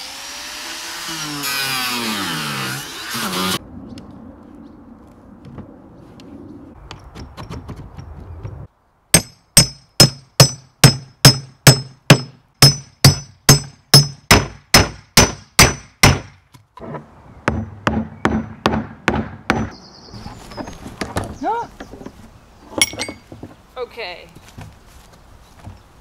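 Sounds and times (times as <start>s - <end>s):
hammer striking metal chisel: 9.2s - 16.3s, 17.5s - 19.8s.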